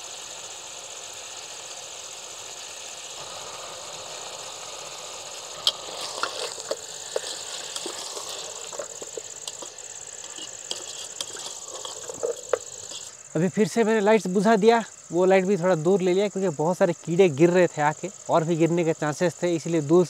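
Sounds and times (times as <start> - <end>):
food sizzling in a frying pan: 0.0 - 13.9
crickets chirping: 0.0 - 20.0
utensil clinking and scraping pan: 5.6 - 13.1.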